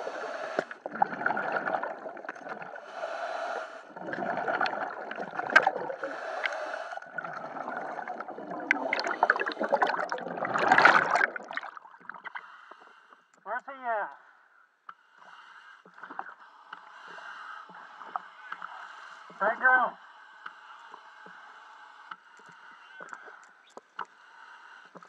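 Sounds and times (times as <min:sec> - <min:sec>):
underwater gurgling and bubbling: 0:00.0 - 0:12.4
surge of water: 0:07.2 - 0:12.1.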